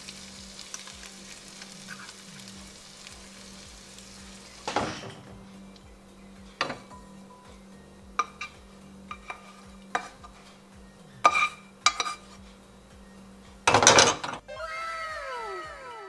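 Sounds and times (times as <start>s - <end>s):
steady low hum: 0.0s - 13.8s
pan clattering on stove grate: 4.6s - 5.4s, 6.6s - 7.0s, 8.2s - 10.5s, 11.2s - 12.4s, 13.7s - 14.4s
utensil clinking and scraping: 8.2s - 12.6s.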